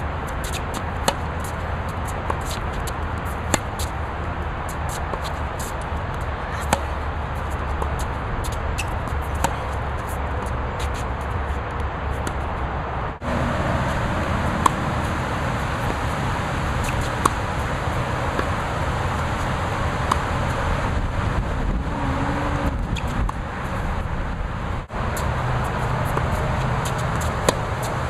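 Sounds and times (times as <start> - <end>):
rumbling background noise: 0.0 - 28.0
tennis racket hitting ball: 0.4 - 4.0, 4.6 - 12.5, 13.2 - 21.0, 25.2 - 28.0.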